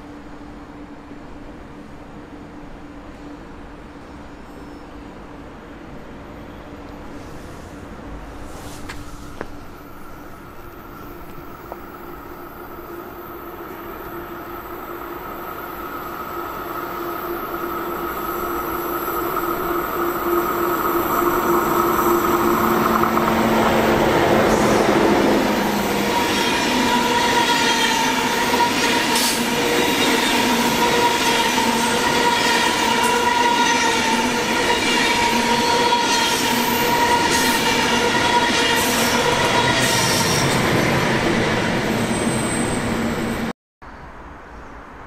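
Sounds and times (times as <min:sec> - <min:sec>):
electric train whine: 0:00.0 - 0:43.5
train wheels rolling: 0:13.6 - 0:43.5.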